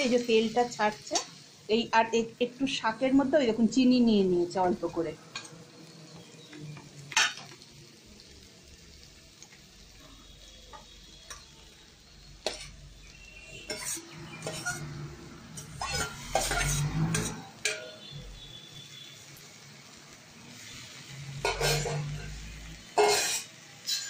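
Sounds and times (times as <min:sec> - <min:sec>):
wok sizzling: 0:00.0 - 0:24.0
spoon scraping metal pot: 0:13.6 - 0:15.0, 0:15.6 - 0:18.1, 0:21.4 - 0:22.2, 0:23.0 - 0:24.0
spoon clinking on metal: 0:23.0 - 0:24.0.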